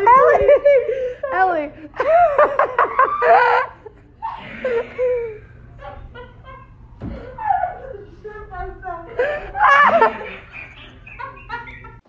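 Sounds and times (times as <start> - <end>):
people laughing: 0.0 - 12.0.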